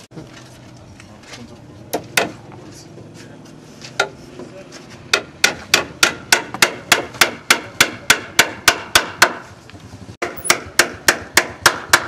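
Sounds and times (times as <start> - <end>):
hammer striking wooden frame: 1.9 - 2.4, 3.9 - 4.2, 5.0 - 9.6, 10.2 - 12.0.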